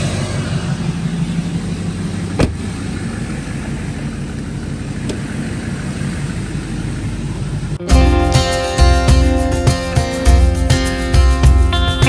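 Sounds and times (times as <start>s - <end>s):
truck engine idling: 0.0s - 12.0s
truck door shutting: 2.3s - 2.7s.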